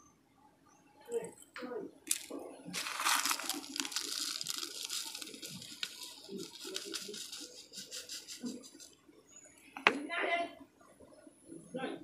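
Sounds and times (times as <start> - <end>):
potting mix pouring into a pot: 2.1 - 8.5.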